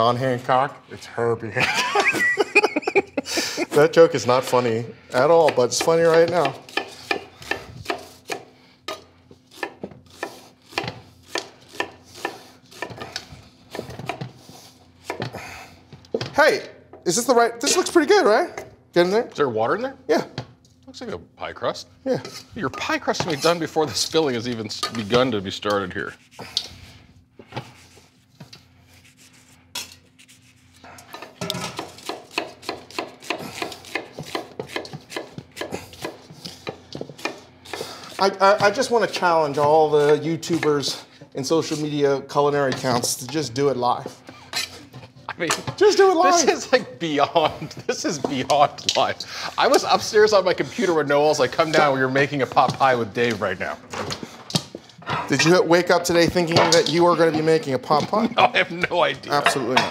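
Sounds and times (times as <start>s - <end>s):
knife chopping on wooden board: 5.2s - 14.4s, 15.0s - 15.4s, 31.1s - 40.7s
hands rubbing dough in metal bowl: 25.0s - 31.3s.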